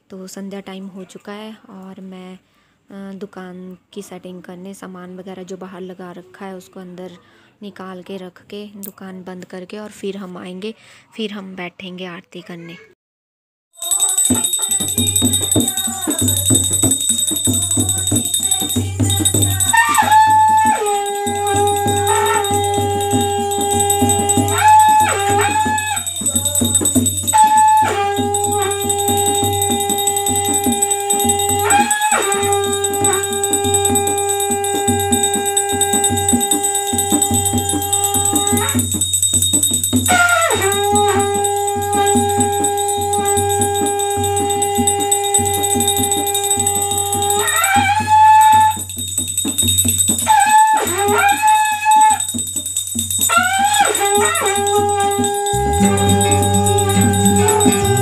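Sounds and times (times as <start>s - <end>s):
hand drum beating: 13.8s - 58.0s
jingling percussion: 13.8s - 58.0s
long held sung notes: 13.9s - 47.4s, 54.1s - 58.0s.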